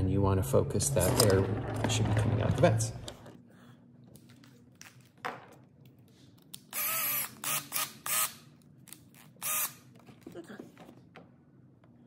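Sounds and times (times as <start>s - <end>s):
cordless drill whirring: 6.7s - 8.3s.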